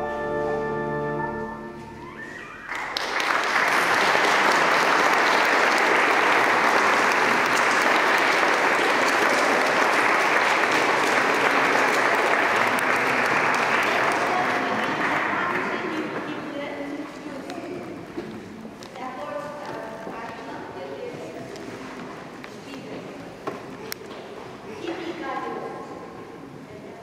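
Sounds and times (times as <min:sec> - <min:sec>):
pipe organ chord: 0:00.0 - 0:02.0
congregation applauding: 0:02.0 - 0:16.3.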